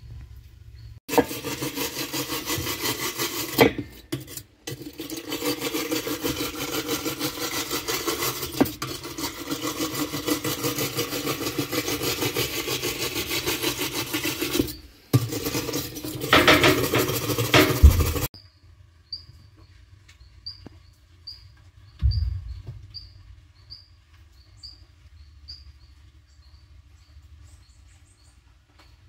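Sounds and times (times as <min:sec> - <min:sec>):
wire brush scrubbing metal: 0:01.1 - 0:18.3.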